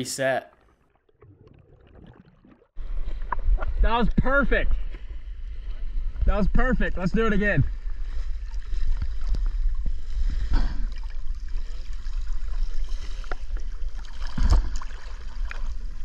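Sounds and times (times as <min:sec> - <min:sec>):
water sloshing and splashing: 0:00.5 - 0:03.8, 0:07.7 - 0:16.0.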